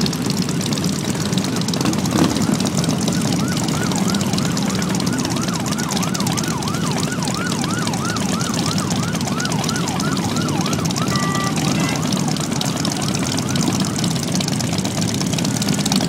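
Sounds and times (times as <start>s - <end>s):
motorcycle engines rumbling: 0.0s - 16.0s
siren yelping: 1.9s - 14.7s.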